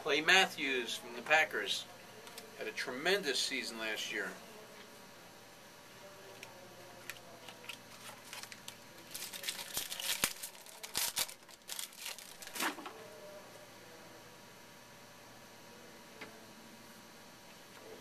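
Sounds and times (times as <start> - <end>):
card packaging rustling: 7.1 - 12.9.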